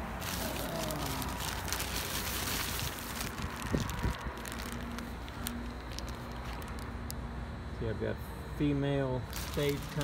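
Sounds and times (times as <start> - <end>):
plastic packaging crinkling: 0.0 - 7.1, 9.2 - 10.0.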